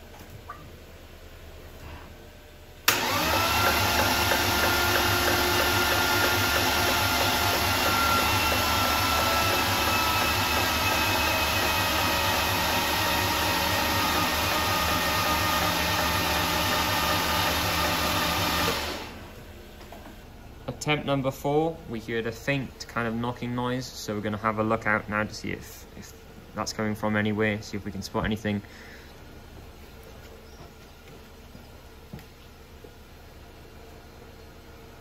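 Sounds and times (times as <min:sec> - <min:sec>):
starter motor cranking engine: 0:02.9 - 0:19.3.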